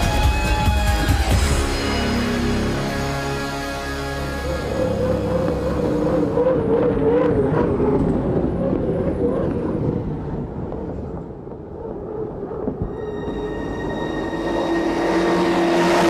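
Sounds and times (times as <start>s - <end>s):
powerboat engines droning: 3.6s - 10.5s.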